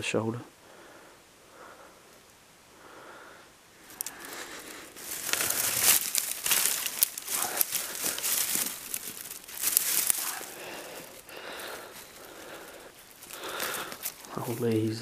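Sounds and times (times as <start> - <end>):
twigs and leaves crackling: 3.7 - 15.0.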